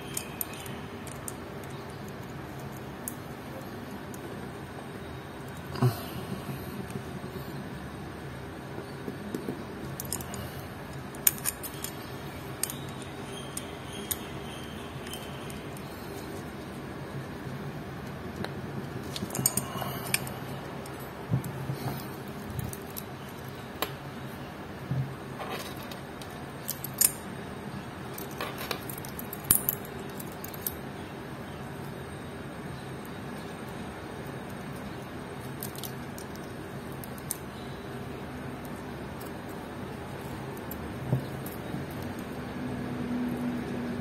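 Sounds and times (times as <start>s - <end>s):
metal watch bracelet clinking: 11.2s - 16.2s, 19.0s - 21.1s.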